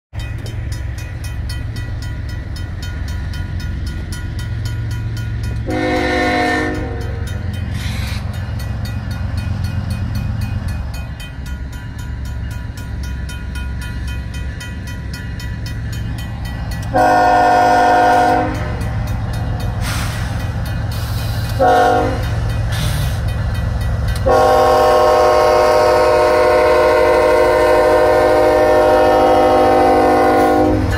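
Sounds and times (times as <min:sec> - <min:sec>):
crossing bell ringing: 0:00.1 - 0:30.9
diesel locomotive rumble: 0:00.1 - 0:30.9
locomotive horn blast: 0:05.6 - 0:07.3, 0:16.9 - 0:18.8, 0:21.5 - 0:22.3, 0:24.2 - 0:30.9.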